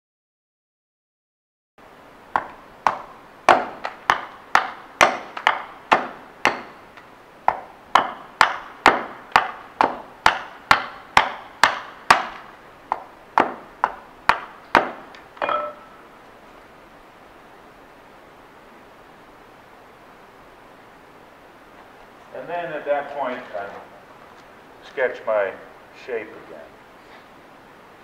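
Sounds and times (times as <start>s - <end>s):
hatchet chopping wood: 2.3s - 15.9s
knock with short ring: 15.4s - 15.9s.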